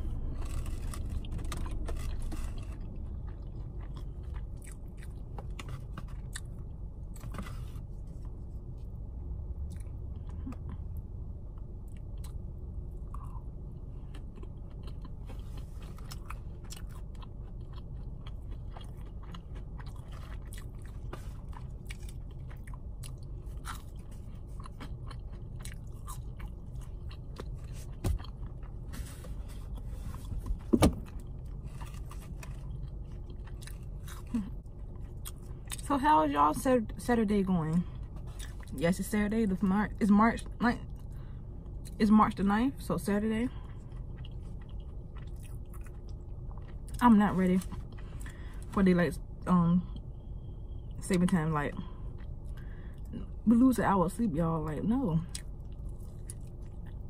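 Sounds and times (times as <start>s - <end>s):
person chewing crunchy food: 0.0s - 8.8s, 9.6s - 35.8s, 37.8s - 38.8s, 43.5s - 48.8s, 51.8s - 53.2s, 55.3s - 57.0s
low rumble inside car: 0.0s - 57.0s.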